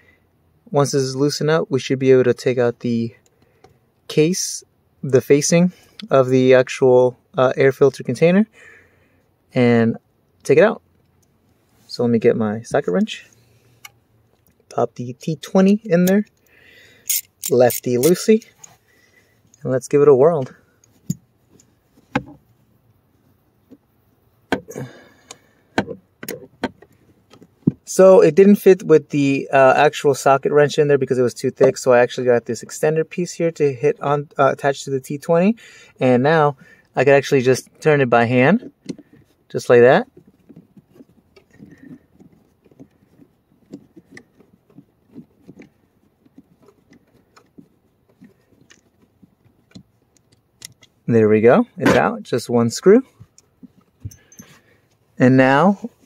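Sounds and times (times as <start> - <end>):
wrench rattle: 15.5 - 18.8
ratchet wrench clicks and taps: 17.1 - 18.1.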